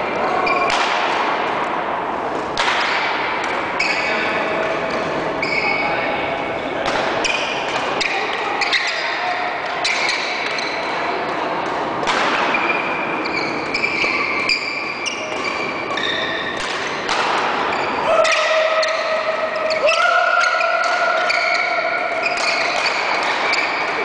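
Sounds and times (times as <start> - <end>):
racket hitting shuttlecock: 0.5 - 1.6, 2.3 - 3.9, 6.8 - 8.4, 11.6 - 12.9, 13.7 - 24.0
sneakers squeaking on court floor: 4.9 - 6.0, 7.2 - 11.0, 12.5 - 24.0.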